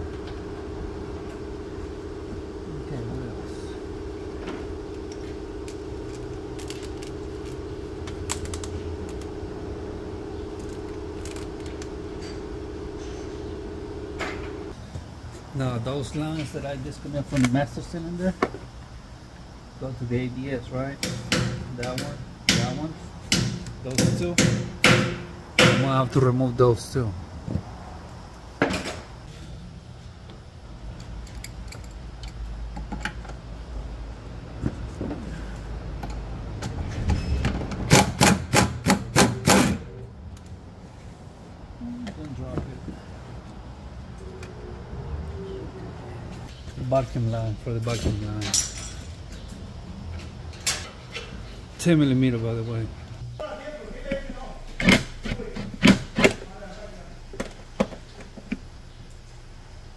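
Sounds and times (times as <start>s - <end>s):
steady hum: 0.0s - 36.6s.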